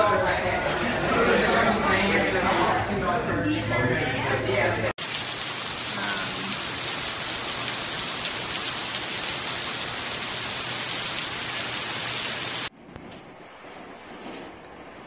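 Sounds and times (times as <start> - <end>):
heavy rain pouring: 5.0 - 12.7
quieter duller rain: 5.0 - 15.0.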